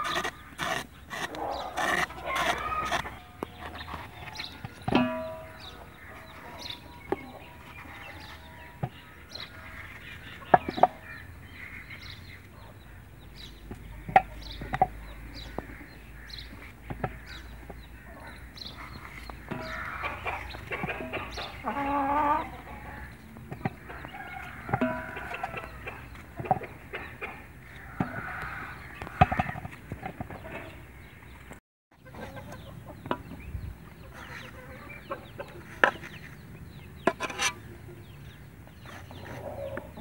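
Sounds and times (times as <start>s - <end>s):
knife cutting gourd: 0.0s - 5.6s
clucking bird calls: 0.0s - 40.0s.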